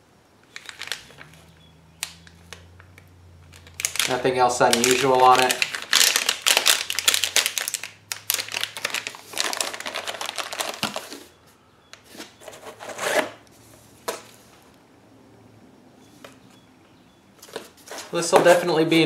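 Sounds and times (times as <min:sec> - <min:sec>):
plastic bag crinkling: 0:00.4 - 0:11.4.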